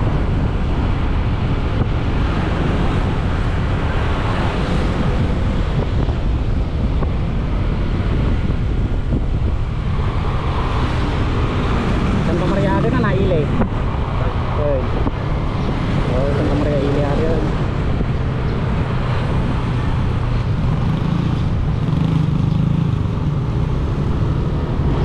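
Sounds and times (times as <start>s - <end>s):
road noise: 0.0s - 25.0s
wind buffeting microphone: 0.0s - 25.0s
motorcycle engine: 13.8s - 25.0s.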